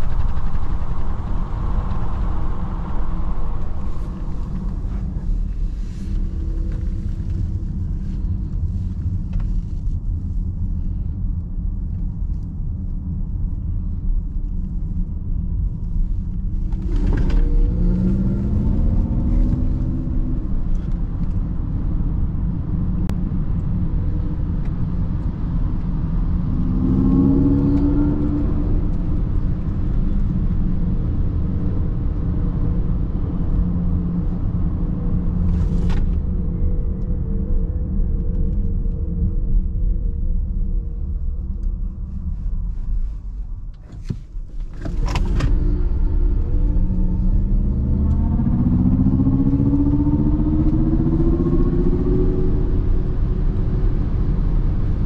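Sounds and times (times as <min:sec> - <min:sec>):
road and wind rumble inside car: 0:00.0 - 0:55.0.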